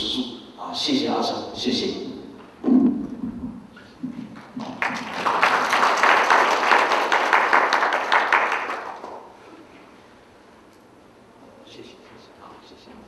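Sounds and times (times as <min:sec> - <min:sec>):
audience applauding: 0:04.4 - 0:09.3.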